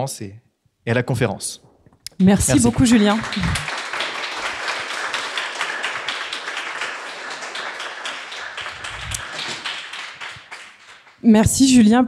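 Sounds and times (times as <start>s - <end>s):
audience applauding: 2.2s - 11.2s.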